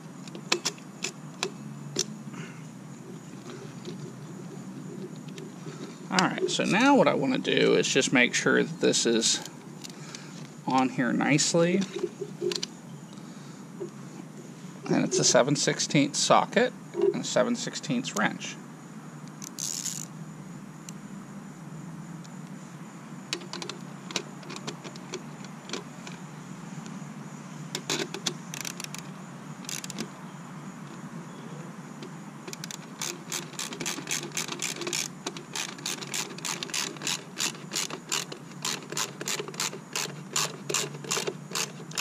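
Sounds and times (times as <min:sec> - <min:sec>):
socket ratchet clicking: 0:19.3 - 0:20.1, 0:27.8 - 0:30.1, 0:32.5 - 0:42.0.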